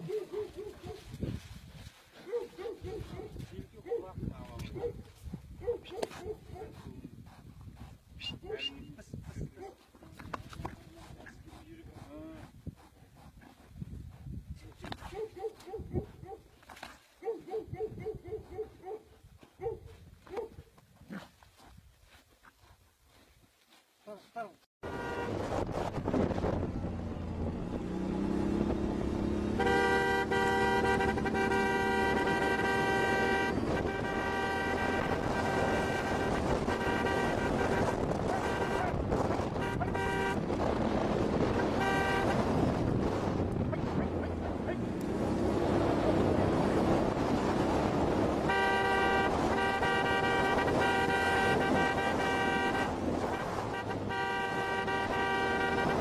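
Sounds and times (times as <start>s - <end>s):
vehicle horn honking: 24.8s - 25.4s, 29.4s - 40.5s, 41.5s - 42.6s, 48.3s - 56.0s
vehicle driving over rough ground: 25.2s - 29.6s.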